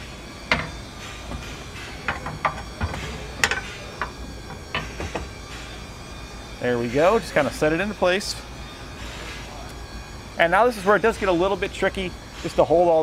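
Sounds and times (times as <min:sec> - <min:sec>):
metal spring knocks and clicks: 0:00.5 - 0:05.3.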